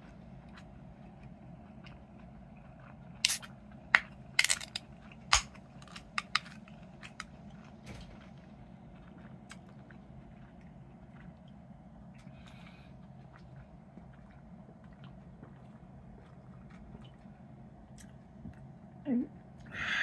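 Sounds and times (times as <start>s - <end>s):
drink can opening: 3.2s - 3.5s.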